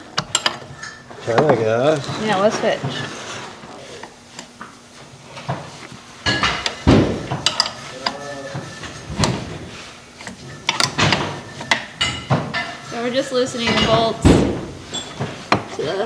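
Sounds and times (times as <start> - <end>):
wrench clinking on metal bolts: 7.4 - 8.3.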